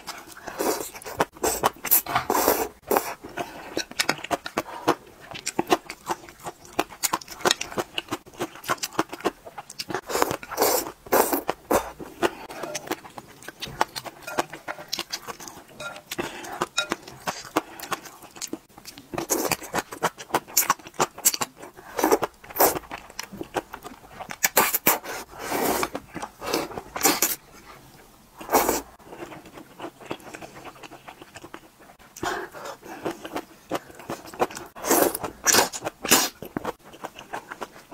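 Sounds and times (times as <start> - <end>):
wet chewing: 0.0 - 25.2.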